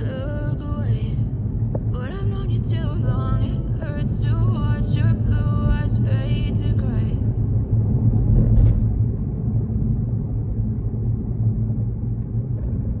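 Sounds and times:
road and tyre rumble in car: 0.0 - 13.0.

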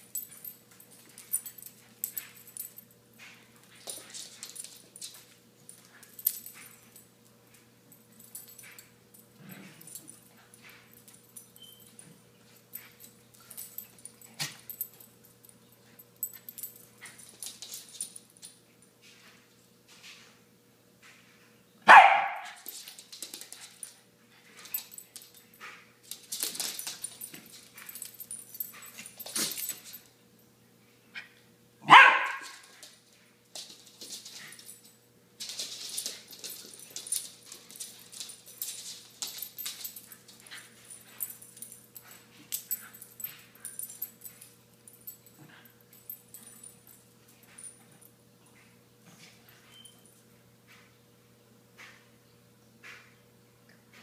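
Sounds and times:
dogs scuffling: 0.0 - 18.5, 22.4 - 30.1, 31.9 - 48.1
dog barking: 21.9 - 22.6, 31.8 - 32.6.

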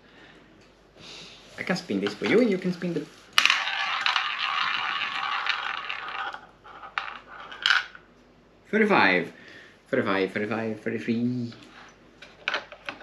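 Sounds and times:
ball rattling in roulette wheel: 3.4 - 8.0.

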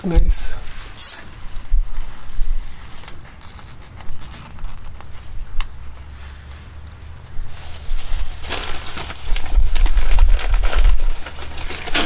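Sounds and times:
zip tie zipping rasp: 0.9 - 1.3.

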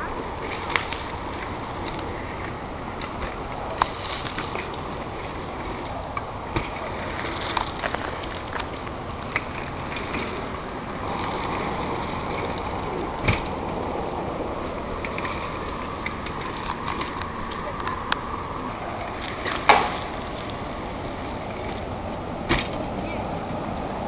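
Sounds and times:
bicycle tyres rushing on dirt: 0.0 - 24.0
wheels landing knocks: 11.1 - 14.2, 19.3 - 23.9.

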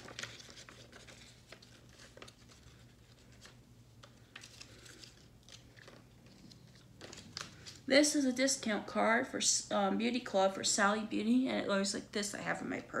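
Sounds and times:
paper rustling and flicking: 0.0 - 7.9
low steady hum: 0.0 - 13.0.

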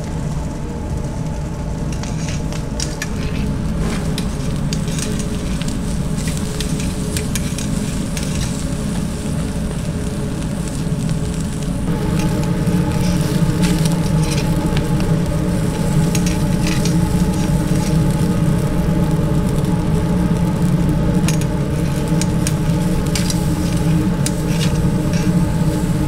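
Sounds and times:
fish sizzling on a grill: 0.0 - 26.0
machine hum: 0.0 - 26.0.

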